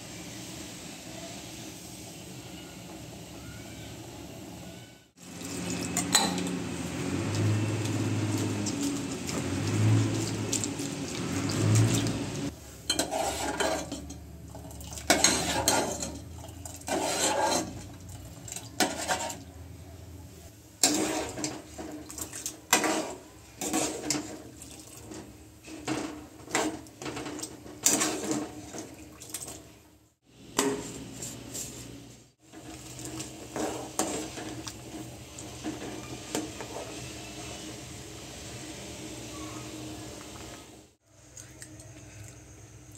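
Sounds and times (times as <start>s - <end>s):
dishes and utensils clinking: 5.6s - 6.6s, 12.9s - 19.4s.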